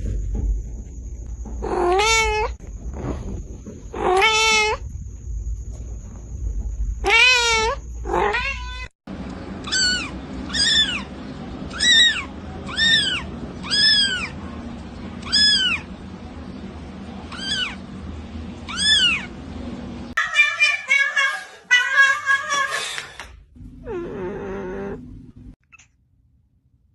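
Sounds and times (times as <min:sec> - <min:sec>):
cat meowing: 0:01.6 - 0:02.6, 0:04.0 - 0:04.8, 0:07.0 - 0:08.9, 0:09.6 - 0:11.1, 0:11.7 - 0:14.4, 0:15.2 - 0:15.9, 0:17.3 - 0:17.8, 0:18.7 - 0:19.3, 0:23.9 - 0:25.0.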